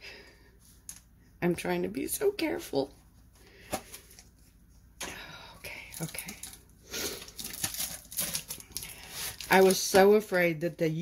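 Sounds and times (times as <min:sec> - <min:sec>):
packaging crinkling and rustling: 0:05.8 - 0:10.4.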